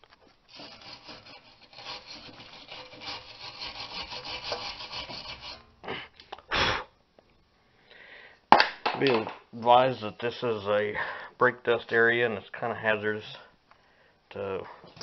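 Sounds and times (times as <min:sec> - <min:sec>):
wire brush scrubbing metal: 0:00.0 - 0:05.8.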